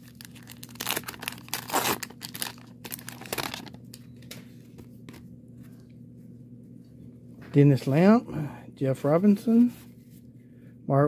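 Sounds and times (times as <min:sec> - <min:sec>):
wax-paper wrapper crinkling and tearing: 0:00.0 - 0:04.0.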